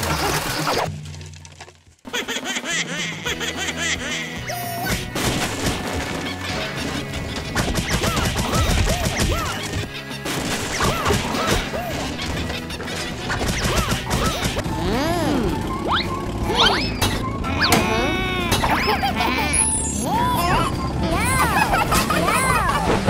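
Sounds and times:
background music: 2.1s - 23.0s
cartoon sound effects swooping: 13.6s - 20.7s.

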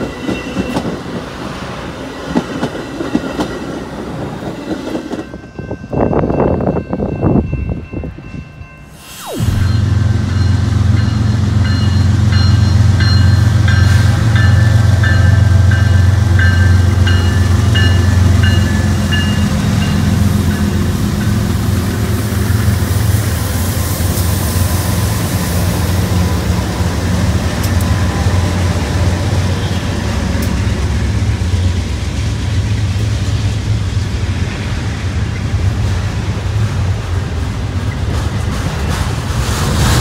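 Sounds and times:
diesel locomotive engine drone: 0.0s - 40.0s
crossing bell ringing: 4.9s - 22.7s
freight cars rumbling and rattling: 9.6s - 40.0s.

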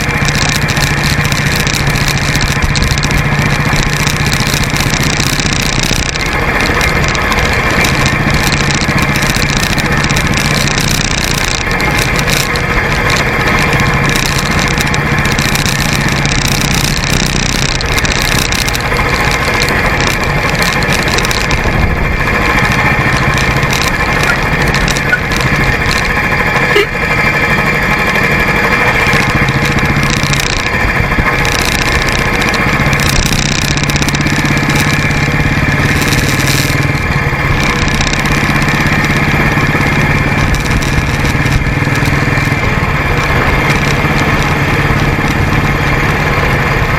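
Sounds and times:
motorcycle engine running: 0.0s - 46.9s
tyre noise: 0.0s - 46.9s
wind on microphone: 16.6s - 27.0s.

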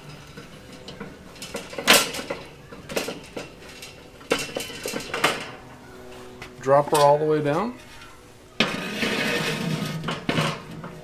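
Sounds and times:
metal grate clanking and rattling: 0.0s - 5.6s, 8.6s - 11.0s.

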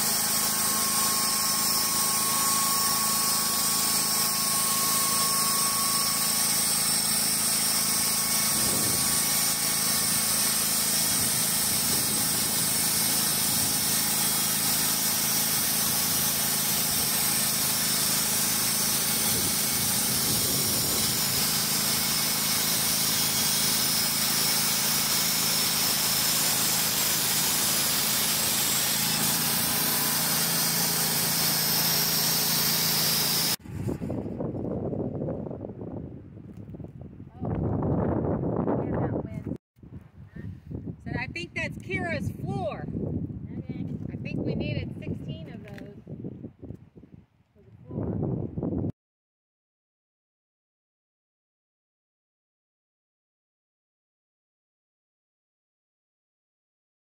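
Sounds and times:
band sawmill cutting timber: 0.0s - 34.4s.

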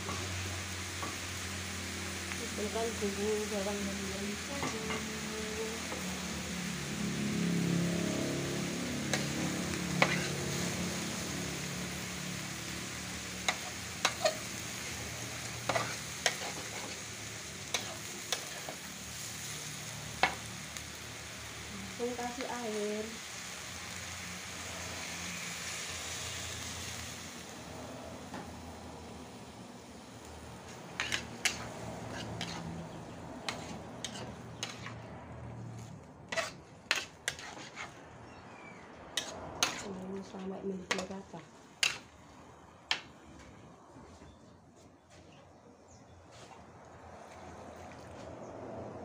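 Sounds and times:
vegetables sizzling in a wok: 0.0s - 43.0s.

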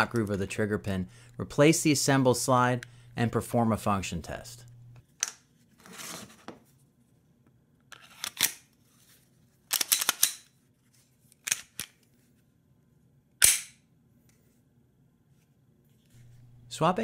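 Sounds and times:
pistol slide clicks and snaps: 9.7s - 10.5s, 13.4s - 13.8s.

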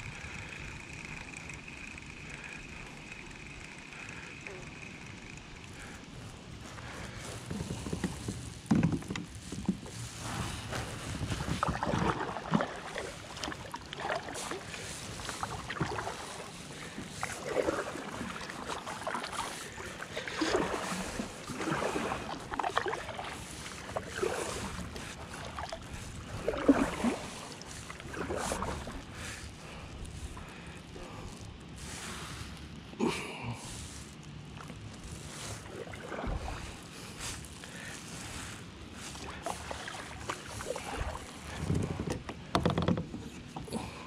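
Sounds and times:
paddle splashing in water: 6.8s - 30.5s, 34.6s - 44.0s.

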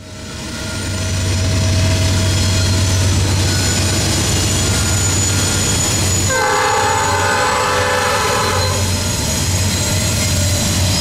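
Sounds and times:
diesel locomotives droning: 0.0s - 11.0s
locomotive air horn chord: 6.3s - 8.9s.

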